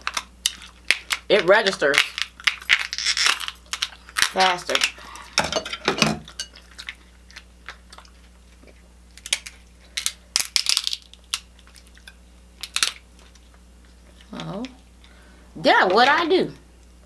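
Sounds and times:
shellfish shells cracking: 0.0s - 14.5s
chewing: 6.3s - 9.6s, 11.1s - 12.2s.

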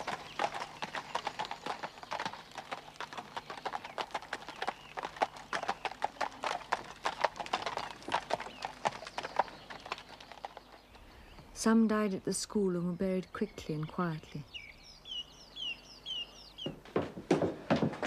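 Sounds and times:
horse hooves clip-clopping: 0.0s - 11.0s, 16.6s - 18.0s.

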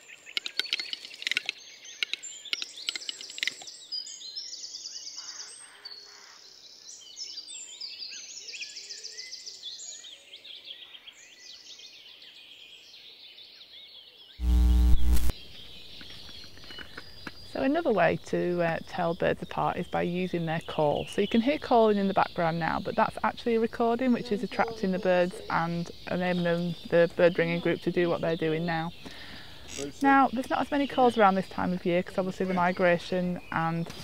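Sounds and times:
small birds chirping and trilling: 0.0s - 14.7s, 15.3s - 34.0s
sharp clicks: 0.4s - 3.7s, 14.4s - 15.3s
loud burst of noise: 14.4s - 15.3s.

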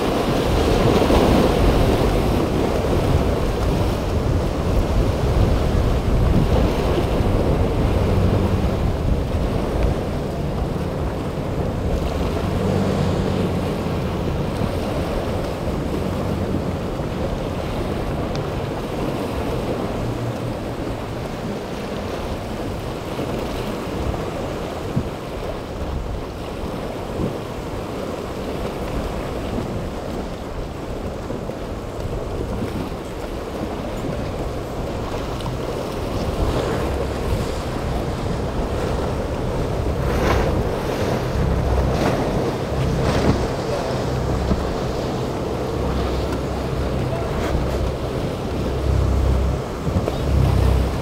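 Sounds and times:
outboard engines running: 0.0s - 51.0s
surf breaking: 0.0s - 51.0s
water splashes: 0.0s - 51.0s
wind buffeting microphone: 0.0s - 51.0s.

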